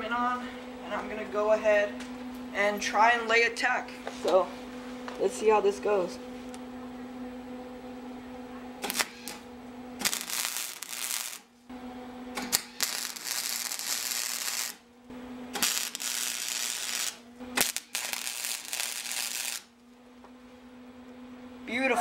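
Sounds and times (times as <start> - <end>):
steady low hum: 0.0 - 22.0
welder arc crackling and sizzling: 8.8 - 11.6, 12.4 - 19.9.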